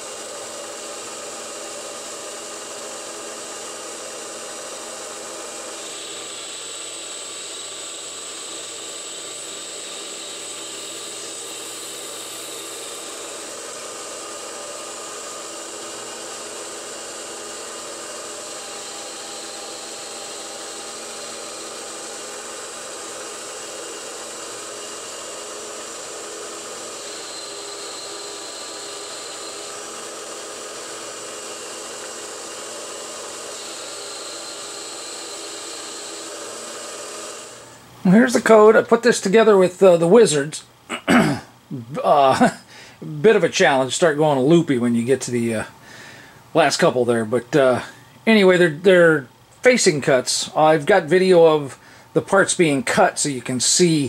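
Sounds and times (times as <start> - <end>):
metal lathe whirring: 0.0 - 40.8.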